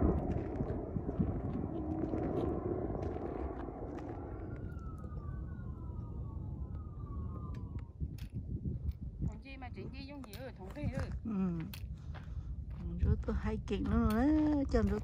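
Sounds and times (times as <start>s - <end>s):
microphone rumbling and rustling: 0.0s - 5.6s, 6.5s - 15.0s
faint distant siren: 0.0s - 11.1s.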